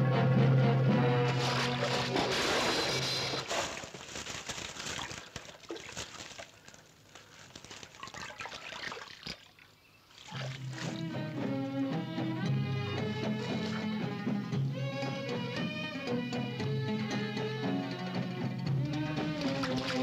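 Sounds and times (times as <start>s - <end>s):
music: 0.0s - 3.3s, 10.5s - 20.0s
water splashing in a stream: 1.3s - 11.4s, 13.0s - 14.2s, 19.0s - 20.0s.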